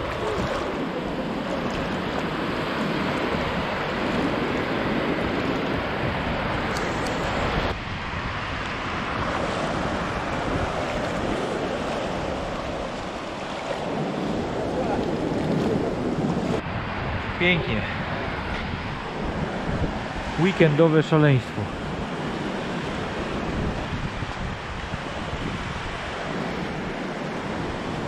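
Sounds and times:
wind noise on microphone: 0:00.0 - 0:20.5, 0:21.6 - 0:28.0
sea surf washing in: 0:00.0 - 0:28.0.

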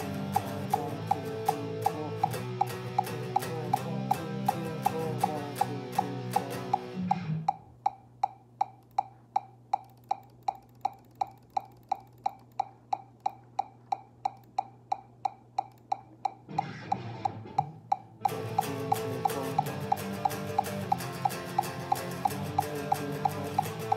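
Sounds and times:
electric guitar playing: 0:00.0 - 0:07.6, 0:16.4 - 0:23.9
metronome clicking: 0:00.0 - 0:23.9.

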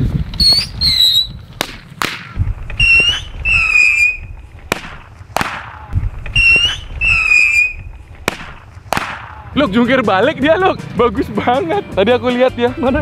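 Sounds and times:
shrill whistling tones: 0:00.4 - 0:01.4, 0:02.8 - 0:04.3, 0:06.4 - 0:07.9
firecrackers cracking: 0:00.6 - 0:09.6.

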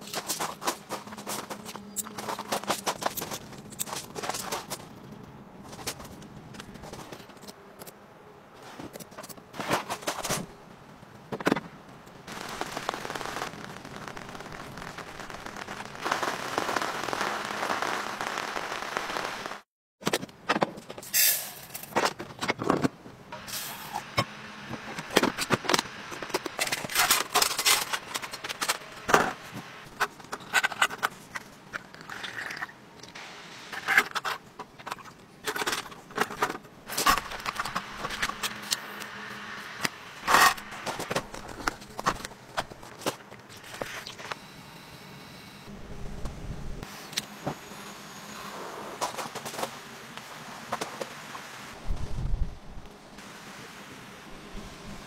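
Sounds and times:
camp gear clicking and rustling: 0:00.0 - 0:08.0
steady hiss: 0:12.2 - 0:19.6, 0:33.2 - 0:34.5, 0:43.5 - 0:55.0.

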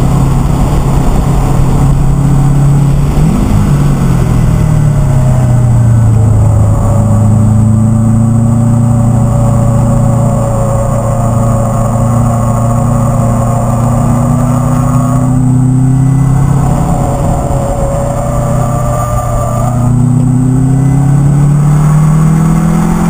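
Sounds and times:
car engine pulling hard: 0:00.0 - 0:23.0.

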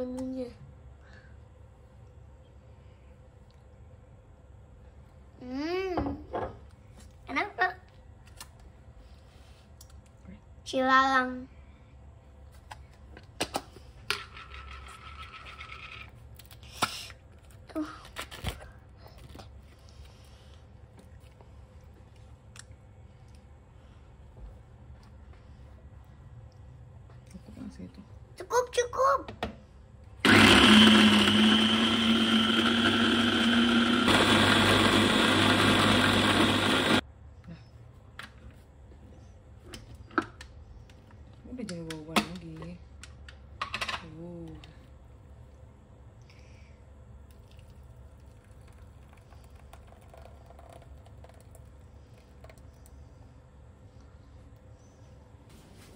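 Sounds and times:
blender motor running: 0:30.2 - 0:37.0.

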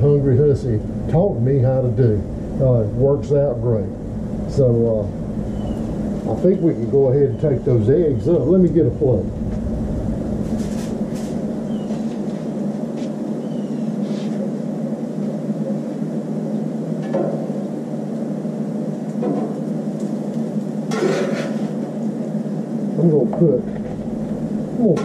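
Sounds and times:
steady low hum: 0:00.0 - 0:25.0
metal spatula scraping griddle: 0:20.9 - 0:21.8.

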